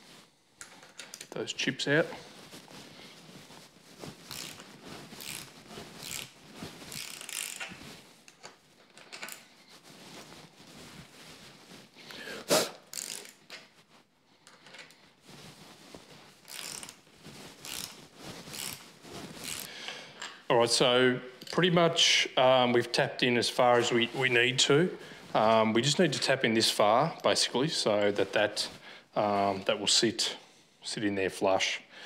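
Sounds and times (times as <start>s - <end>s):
ratcheting spanner clicking: 12.9s - 13.4s.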